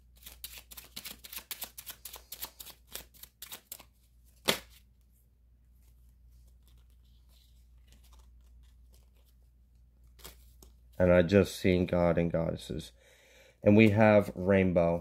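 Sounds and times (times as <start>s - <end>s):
cards being shuffled: 0.0s - 5.1s, 5.7s - 11.0s.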